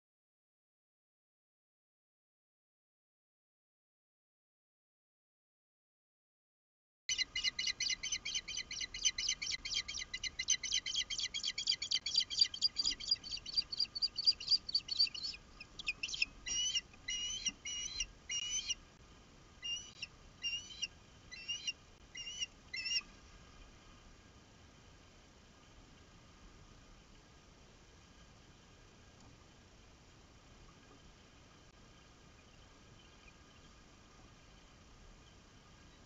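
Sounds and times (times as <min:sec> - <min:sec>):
osprey alarm calls: 0:07.1 - 0:18.8, 0:19.6 - 0:23.0.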